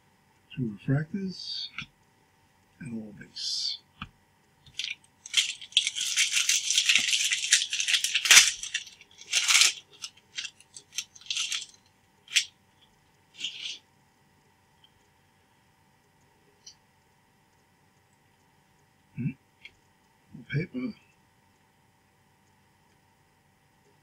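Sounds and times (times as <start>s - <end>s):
cards being handled: 4.7s - 12.5s, 13.4s - 13.8s
foil wrapper crinkling: 4.7s - 12.5s, 13.4s - 13.8s
wrapper snapping: 4.7s - 12.5s, 13.4s - 13.8s.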